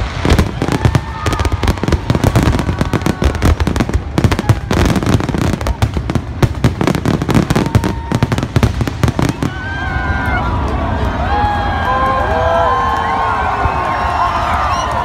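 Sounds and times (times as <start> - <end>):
fireworks bangs and crackling: 0.0 - 10.5.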